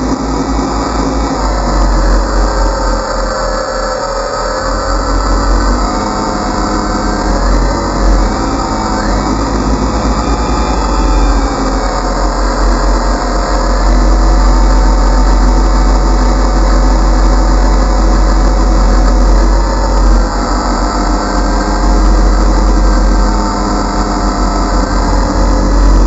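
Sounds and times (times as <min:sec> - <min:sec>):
drone propellers whirring: 0:00.0 - 0:26.0
low rumble: 0:00.0 - 0:26.0.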